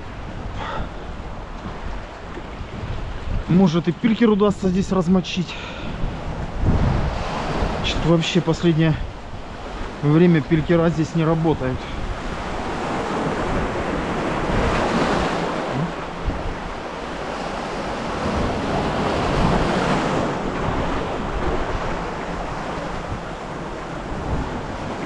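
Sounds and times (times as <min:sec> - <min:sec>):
wind buffeting microphone: 0:00.0 - 0:05.0, 0:05.8 - 0:08.1, 0:11.8 - 0:25.0
surf breaking among boulders: 0:12.2 - 0:25.0.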